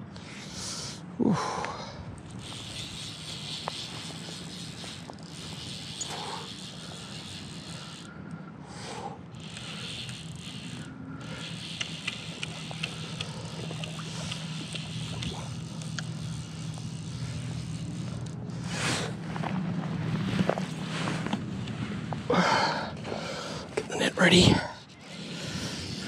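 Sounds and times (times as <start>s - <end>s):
low motor hum: 1.2s - 26.0s
fly reel ticking: 2.2s - 19.2s, 24.3s - 26.0s.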